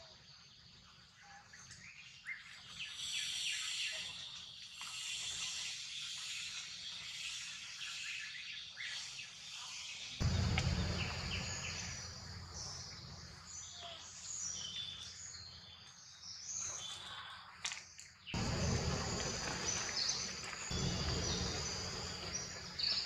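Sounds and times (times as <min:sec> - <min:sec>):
steady hiss: 0:10.2 - 0:13.2, 0:18.4 - 0:23.0
low rumbling: 0:10.2 - 0:13.6, 0:18.4 - 0:23.0
birds chirping: 0:10.2 - 0:16.8, 0:18.4 - 0:23.0.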